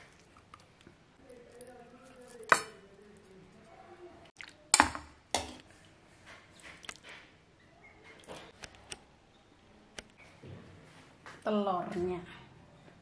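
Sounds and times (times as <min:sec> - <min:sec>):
crockery and utensils clinking: 0:02.3 - 0:02.8.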